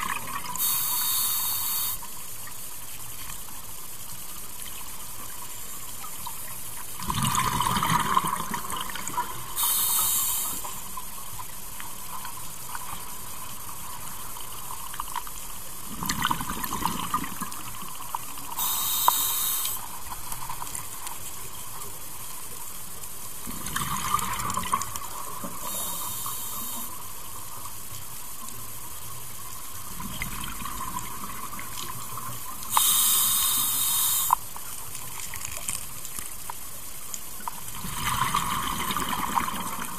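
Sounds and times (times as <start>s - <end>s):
regulator hiss on inhale: 0.5s - 2.4s, 9.4s - 11.0s, 18.4s - 20.1s, 25.0s - 27.3s, 32.7s - 34.6s
exhaled bubbles rumbling: 7.0s - 9.5s, 15.9s - 18.0s, 23.4s - 25.7s, 29.8s - 32.5s, 37.7s - 39.9s.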